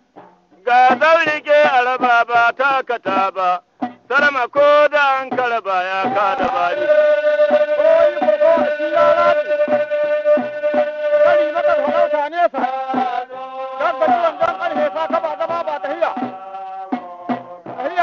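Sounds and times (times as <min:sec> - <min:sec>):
repeating drum beat: 0:00.0 - 0:18.0
long held vocal note: 0:06.3 - 0:12.3.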